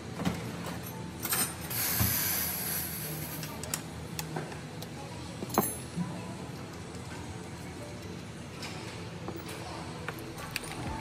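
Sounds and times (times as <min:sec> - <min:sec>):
hiss: 0:01.7 - 0:03.4.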